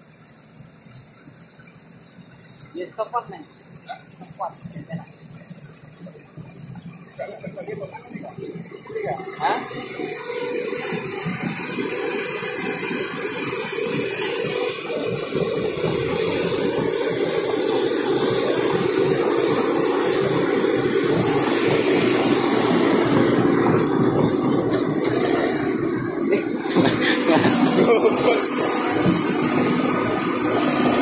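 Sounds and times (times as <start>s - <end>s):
excavator diesel engine running: 0.7s - 31.0s
steel tracks clattering: 7.2s - 31.0s.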